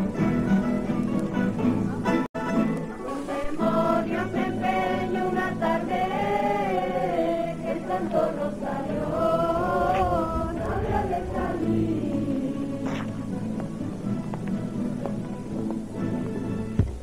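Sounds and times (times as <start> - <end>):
group singing in unison: 3.2 - 13.5.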